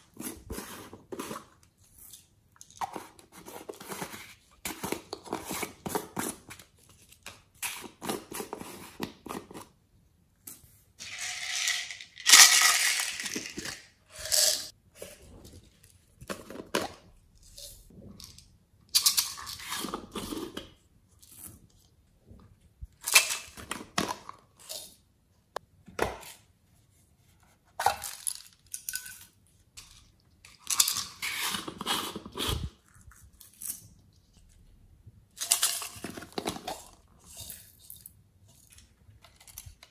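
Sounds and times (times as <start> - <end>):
glitter shaken into glass dish: 11.0 - 14.7
plastic clicks rattles and scraping: 38.5 - 39.9.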